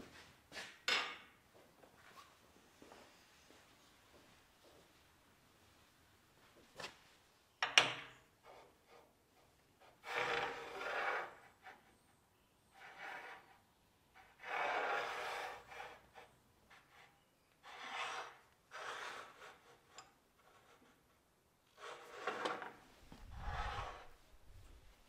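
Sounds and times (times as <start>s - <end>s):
metal gauge scraping on bench: 10.0s - 11.8s, 14.2s - 16.2s, 17.6s - 20.8s, 21.8s - 24.2s.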